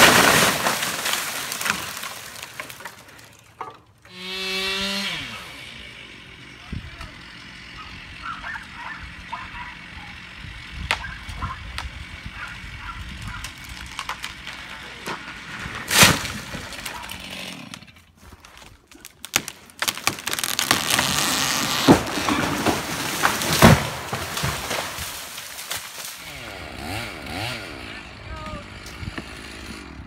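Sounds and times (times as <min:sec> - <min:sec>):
tree crashing down: 0:00.0 - 0:03.4, 0:13.3 - 0:17.2, 0:18.3 - 0:26.3
branches breaking: 0:00.0 - 0:03.6, 0:13.2 - 0:26.9.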